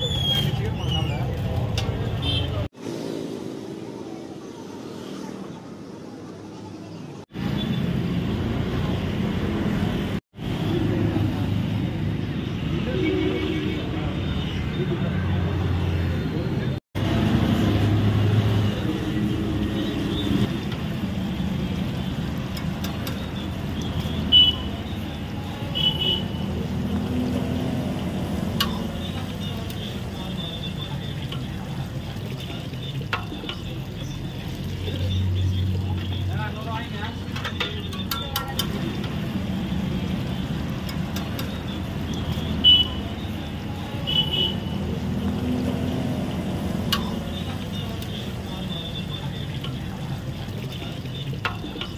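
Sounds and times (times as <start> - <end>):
street traffic rumble: 0.0 - 51.9
faint background voices: 24.4 - 51.9.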